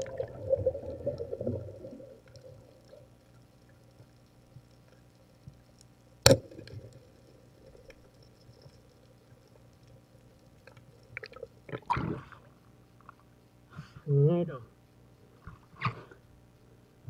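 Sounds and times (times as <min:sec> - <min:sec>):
underwater speargun shot: 0:06.2 - 0:06.7.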